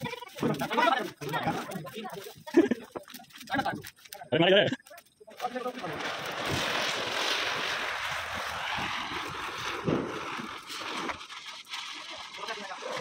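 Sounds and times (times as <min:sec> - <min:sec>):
fireworks fizzing hiss: 0:05.3 - 0:13.0.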